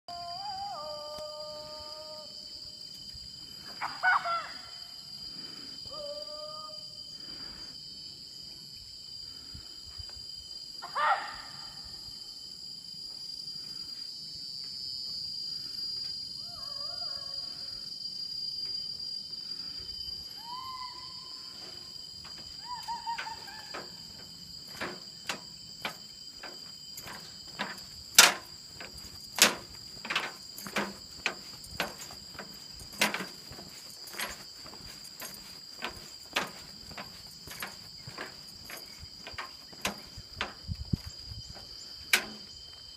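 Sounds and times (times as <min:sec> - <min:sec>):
insects droning: 0:00.1 - 0:42.9
footsteps on metal mesh deck: 0:21.6 - 0:42.9.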